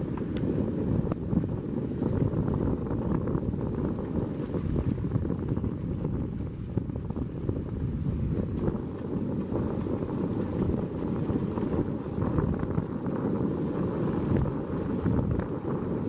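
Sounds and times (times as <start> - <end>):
tyres running through snow: 7.7 - 16.0.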